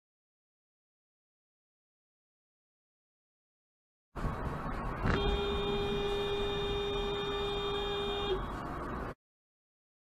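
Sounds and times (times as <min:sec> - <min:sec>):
road noise in car cabin: 0:04.2 - 0:09.2
car horn blast: 0:05.0 - 0:08.5.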